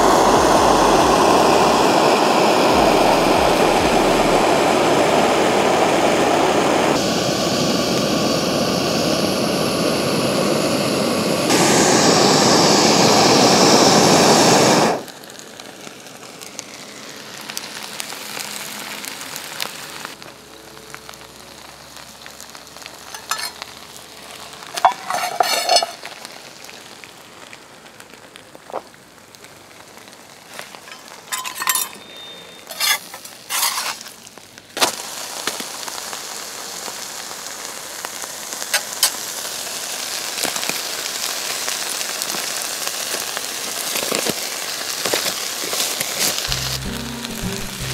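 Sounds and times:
meat sizzling on a pan: 0.0 - 6.2, 7.0 - 47.9
gas stove burner rushing: 0.0 - 15.2, 23.0 - 23.7, 24.6 - 26.3, 30.7 - 34.1, 38.6 - 39.4
metal utensil clinking on pan: 23.1 - 23.6, 24.8 - 26.1, 30.9 - 34.0.

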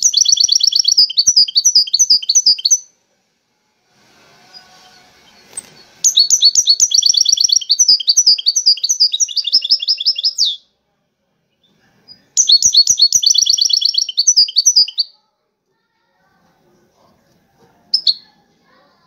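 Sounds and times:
goldfinch twittering song: 0.0 - 2.8, 5.3 - 10.6, 12.4 - 15.1.

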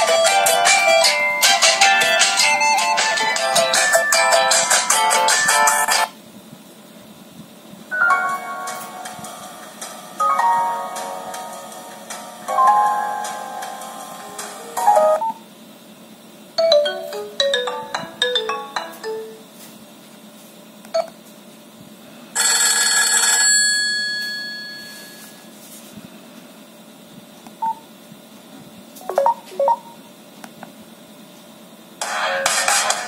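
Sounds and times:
phone ringtone snippets: 0.0 - 6.0, 7.9 - 9.6, 16.6 - 19.5, 22.4 - 25.5, 29.1 - 30.0.

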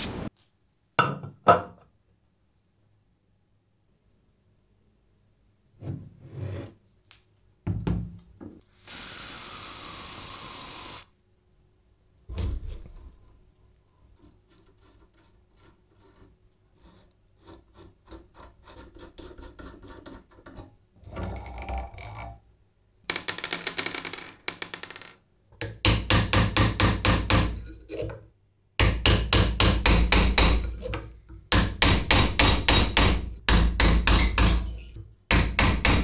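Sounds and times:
spray can hissing: 8.8 - 11.1.

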